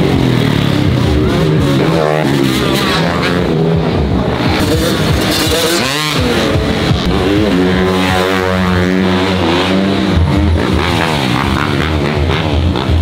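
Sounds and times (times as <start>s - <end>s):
background music: 0.0s - 13.0s
dirt bike engines revving: 0.0s - 13.0s.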